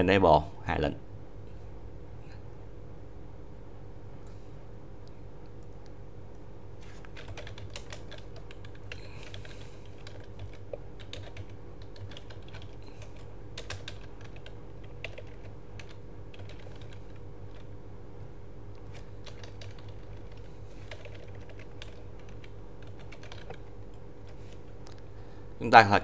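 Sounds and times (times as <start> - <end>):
steady low hum: 0.0 - 26.0
keyboard keys clicking: 6.8 - 17.7, 18.8 - 24.6.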